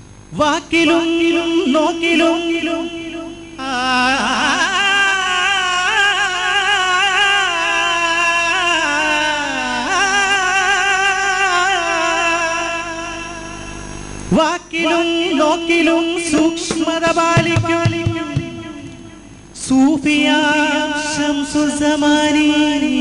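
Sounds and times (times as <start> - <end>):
man singing ornamented line: 0.3 - 23.0
steady held note: 16.3 - 19.6
sharp drum strokes: 16.4 - 19.5.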